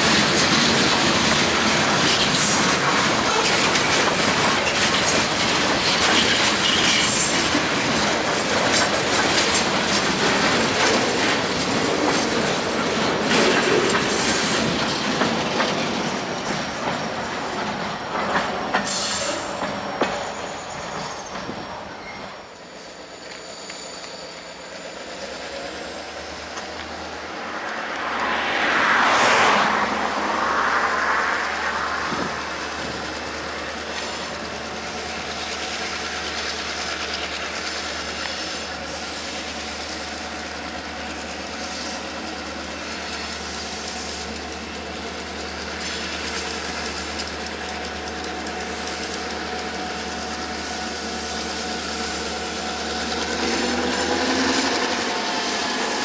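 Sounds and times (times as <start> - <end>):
distant diesel locomotives droning: 0.0 - 56.0
rush of noise: 25.8 - 34.3.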